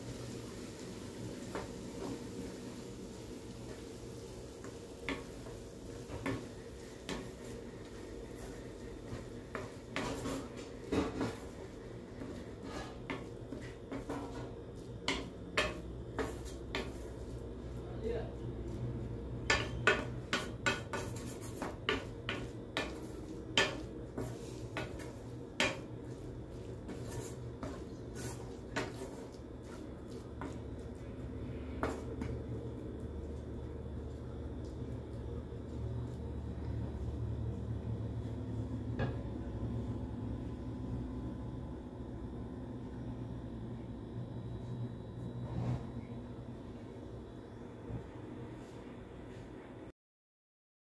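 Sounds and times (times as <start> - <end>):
low steady hum: 0.0 - 49.9
wooden spatula scraping frying pan: 4.6 - 17.4, 19.5 - 31.0.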